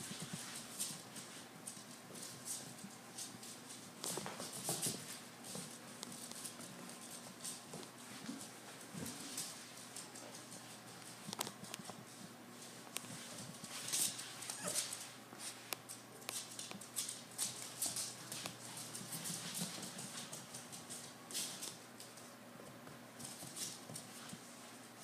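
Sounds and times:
puppy claws clicking on hard floor: 0.1s - 24.5s.

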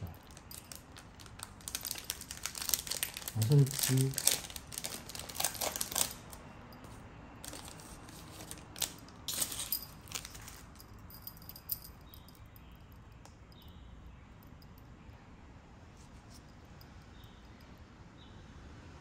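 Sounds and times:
foil wrappers crinkling: 0.0s - 6.4s, 7.4s - 10.8s
cards shuffling: 0.3s - 6.4s, 7.4s - 10.8s.

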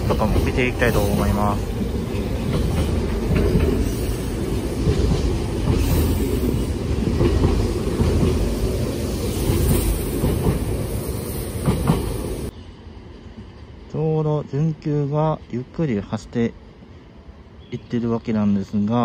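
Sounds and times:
sharp train clacks: 0.0s - 12.5s
train wheels clicking over rail joints: 0.0s - 12.5s
train running rumble: 0.0s - 13.9s.

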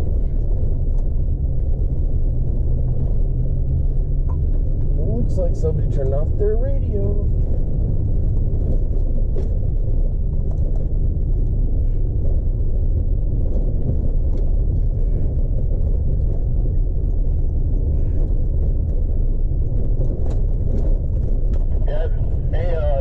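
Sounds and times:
engine and tyres rumbling on gravel: 0.0s - 23.0s.

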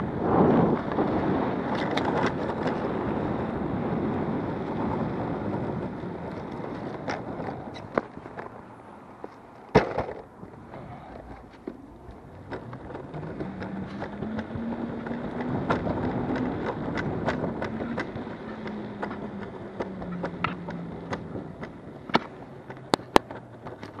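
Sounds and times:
wheels rumbling on road: 0.0s - 24.0s
sharp clicks and knocks: 11.5s - 24.0s.

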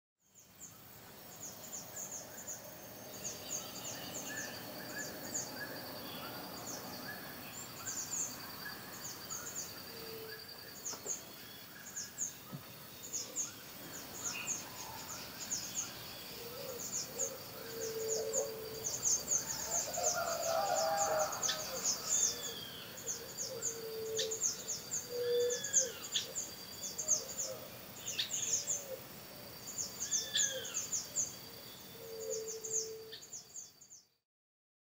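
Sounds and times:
birds chirping: 0.4s - 29.0s
low hoots: 16.4s - 24.4s, 25.0s - 26.2s.

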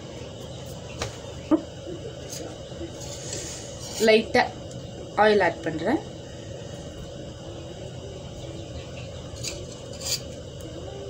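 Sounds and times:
omelette frying in a pan: 0.0s - 11.0s
metal spatula scraping a pan: 2.3s - 4.2s, 9.4s - 10.4s.

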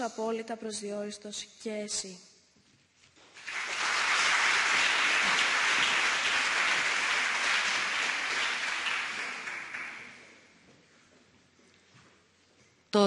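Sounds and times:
audience applauding: 3.4s - 10.4s.

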